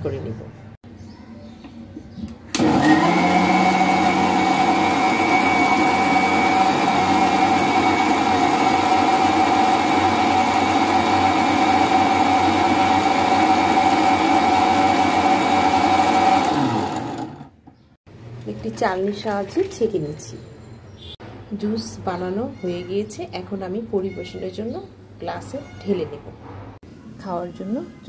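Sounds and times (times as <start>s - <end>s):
mixer-grinder motor blending: 2.5s - 17.6s.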